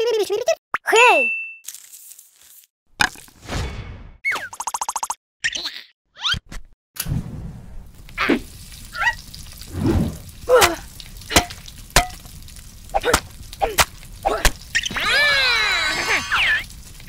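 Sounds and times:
short cartoon squeaks: 4.2 - 6.6
squeaky cartoon cry: 14.8 - 16.7.

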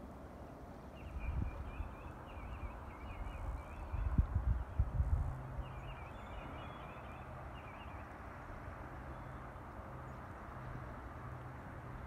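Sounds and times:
small birds chirping: 0.9 - 4.9, 5.6 - 8.2
wind buffeting microphone: 1.0 - 6.4.

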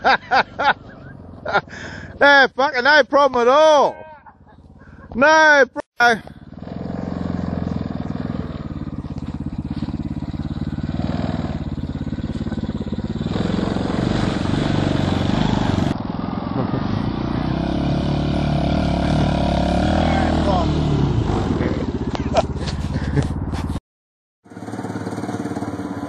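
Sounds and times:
small petrol engine running: 6.3 - 23.7, 24.4 - 26.0.

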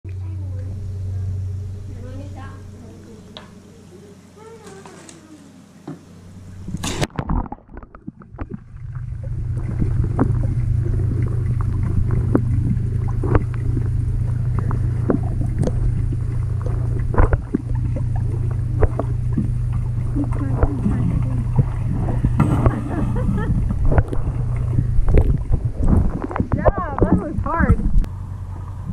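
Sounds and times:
muffled underwater hum: 0.1 - 28.9
underwater clicks and knocks: 6.7 - 28.1.

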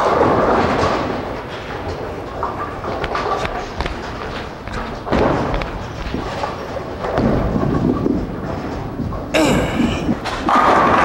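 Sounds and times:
bowling balls rolling on lanes: 0.0 - 11.0
thuds on wooden approach: 3.5 - 9.3.

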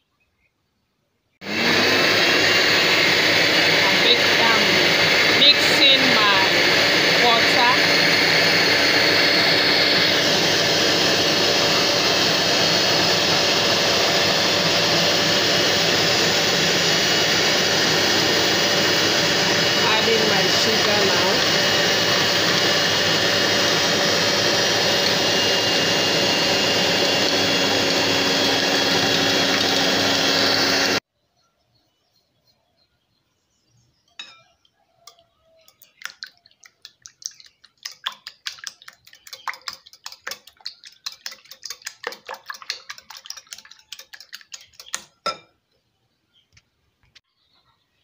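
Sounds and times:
electric hand mixer running: 1.4 - 31.0, 37.2 - 45.0
whisk clicking in glass bowl: 35.8 - 45.2.

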